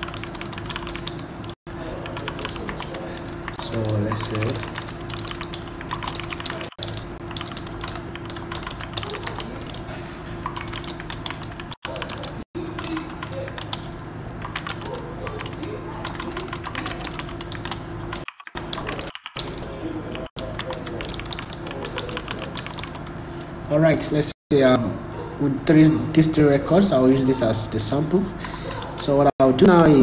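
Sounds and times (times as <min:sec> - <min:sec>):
typing on computer keyboard: 0:00.0 - 0:09.9, 0:10.5 - 0:23.1.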